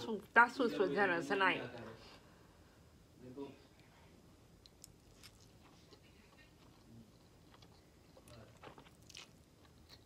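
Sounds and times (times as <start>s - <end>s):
spaghetti slurping and chewing: 4.6s - 10.0s.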